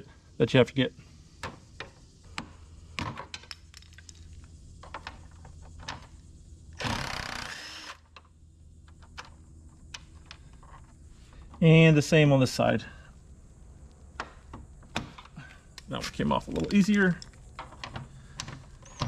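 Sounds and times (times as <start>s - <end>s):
cordless drill running: 6.8s - 8.0s.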